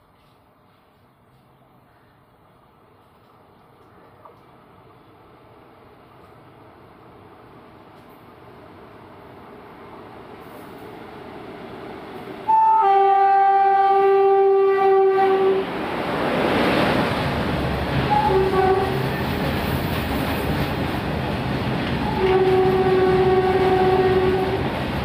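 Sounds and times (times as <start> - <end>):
locomotive horn blasts: 12.5 - 15.7, 18.1 - 19.0, 22.0 - 24.6
locomotive rushing past: 13.5 - 25.0.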